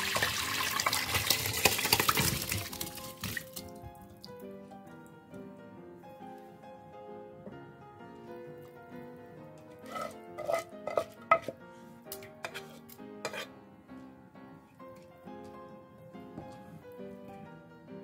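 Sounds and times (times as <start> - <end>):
soft piano music: 0.0 - 18.0
spatula knocking on metal pot: 9.8 - 11.6.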